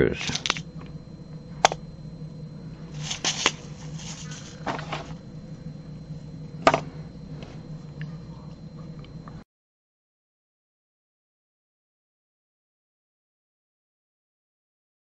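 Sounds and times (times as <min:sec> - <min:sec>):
steady low hum: 0:00.0 - 0:09.5
tools set down on table: 0:03.0 - 0:05.1, 0:06.6 - 0:06.9
plastic box clicks and knocks: 0:06.6 - 0:06.9.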